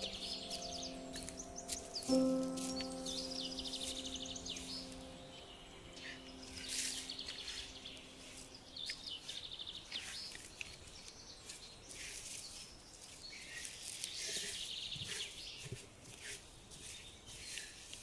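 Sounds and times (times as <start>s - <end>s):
low held music notes: 0.0s - 9.4s
birds chirping and trilling: 0.0s - 15.8s
outdoor background hiss: 0.0s - 18.0s.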